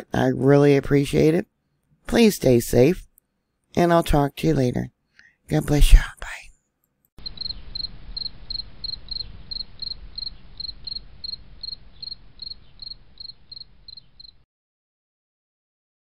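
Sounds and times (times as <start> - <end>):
low steady rumble: 7.2 - 14.2
cricket chirping: 7.2 - 14.4.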